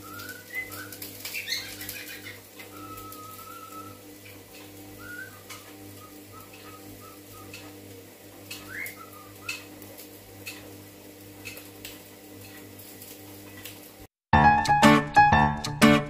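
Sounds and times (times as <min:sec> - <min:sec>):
cockatiel whistling: 0:00.0 - 0:04.0, 0:05.0 - 0:07.7, 0:08.5 - 0:09.7.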